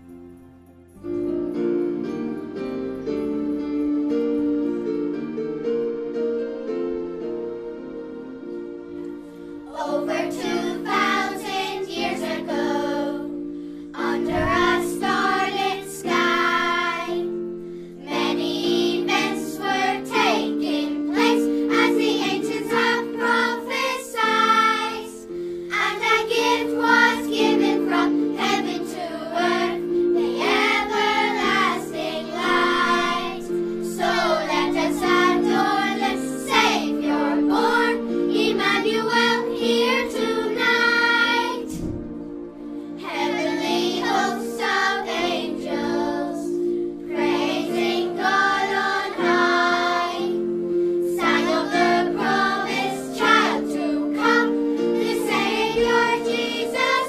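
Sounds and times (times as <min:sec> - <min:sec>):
instrumental held chords: 0:00.0 - 0:57.0
children's choir singing: 0:09.6 - 0:42.1, 0:42.9 - 0:57.0.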